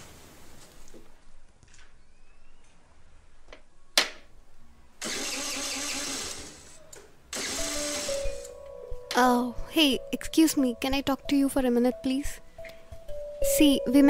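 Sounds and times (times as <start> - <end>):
scooter engine starting and running: 5.0 - 8.4.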